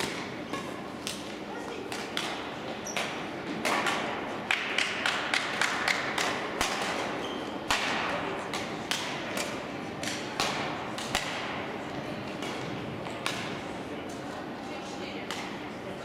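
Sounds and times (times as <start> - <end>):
rackets striking shuttlecocks: 0.0 - 13.7.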